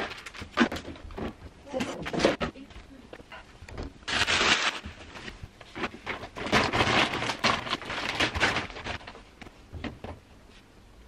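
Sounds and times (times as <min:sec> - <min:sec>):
plastic bag crinkling: 0:04.0 - 0:09.3.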